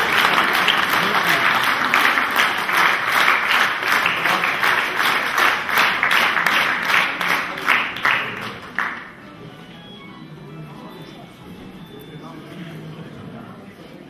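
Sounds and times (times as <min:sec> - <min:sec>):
audience applauding in rhythm: 0:00.0 - 0:09.2.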